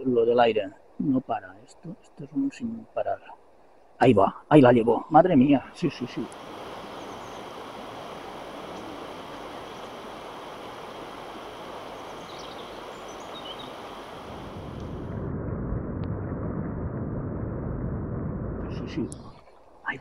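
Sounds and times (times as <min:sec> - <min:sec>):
river water rushing: 0:05.7 - 0:15.1
wind buffeting microphone: 0:06.1 - 0:20.0.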